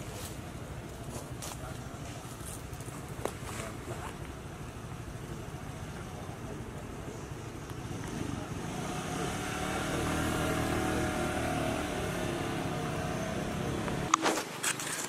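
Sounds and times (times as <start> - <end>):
vehicle engine passing: 7.8 - 14.2.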